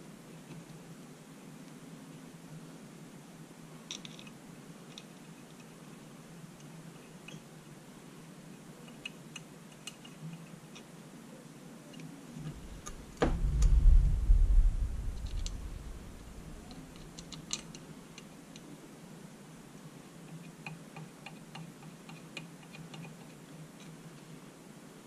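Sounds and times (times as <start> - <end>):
loud low thump: 12.5 - 16.8.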